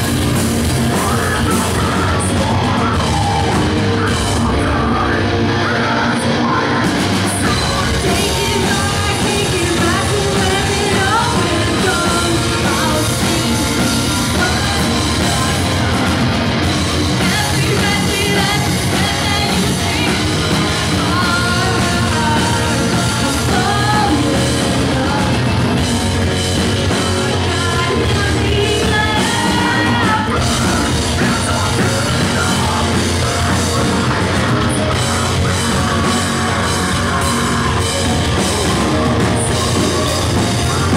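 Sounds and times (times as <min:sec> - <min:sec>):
live rock band playing: 0:00.0 - 0:40.9
woman singing and yelling: 0:06.5 - 0:15.8, 0:27.3 - 0:31.8.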